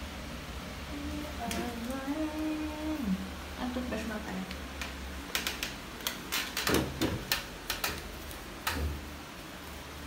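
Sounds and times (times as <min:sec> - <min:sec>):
sharp clicks and light taps: 0:04.5 - 0:09.0.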